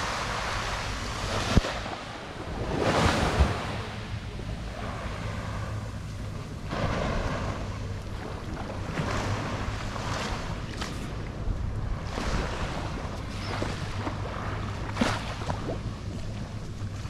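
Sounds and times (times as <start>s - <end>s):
low hum: 0.0s - 17.0s
waves washing onto beach: 0.0s - 17.0s
wind buffeting microphone: 0.0s - 17.0s.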